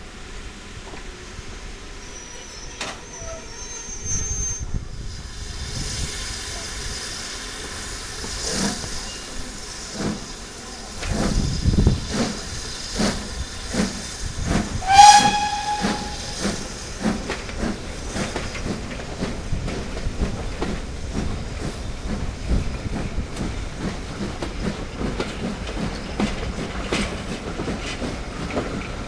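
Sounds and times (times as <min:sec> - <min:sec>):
steam locomotive chuffing: 0:01.4 - 0:29.0
steam hissing: 0:03.4 - 0:29.0
train whistle blast: 0:14.8 - 0:16.6.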